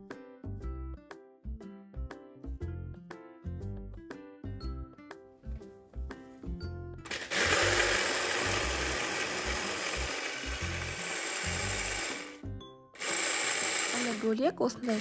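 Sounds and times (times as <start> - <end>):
hand blender crushing chips: 7.1 - 12.4, 13.0 - 15.0.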